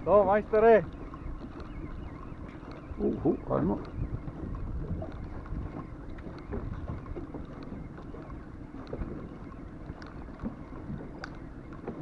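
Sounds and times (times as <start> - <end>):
wind buffeting microphone: 0.0 - 12.0
faint small ticks: 9.8 - 11.9.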